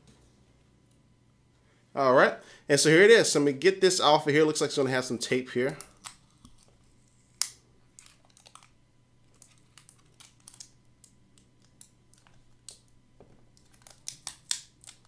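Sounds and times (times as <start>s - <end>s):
plastic packaging clicks and crackles: 7.4s - 15.0s.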